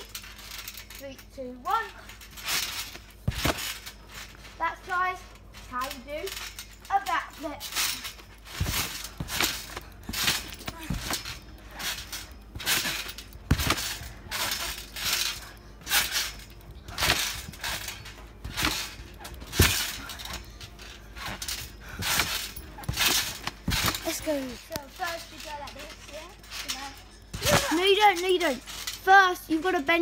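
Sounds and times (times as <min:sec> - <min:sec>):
trampoline springs jangling: 0:00.0 - 0:30.0
trampoline mat thumping: 0:01.7 - 0:29.2.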